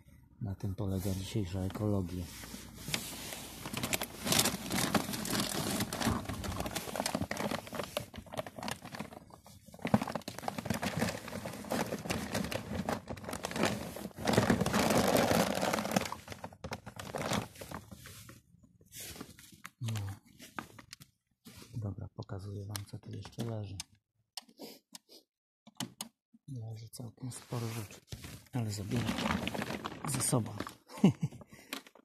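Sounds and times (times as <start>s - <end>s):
plastic bag rustling: 1.1s - 18.4s, 27.6s - 31.2s.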